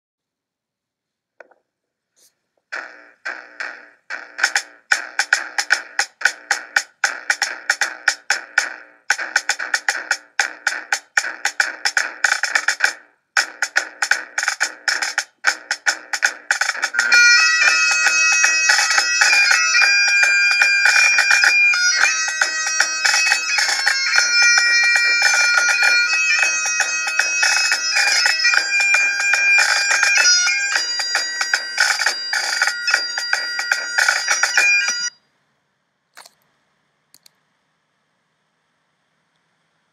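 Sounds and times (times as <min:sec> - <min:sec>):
bagpipe playing fast tune: 0:16.7 - 0:35.1
faint clicks: 0:37.1 - 0:37.4.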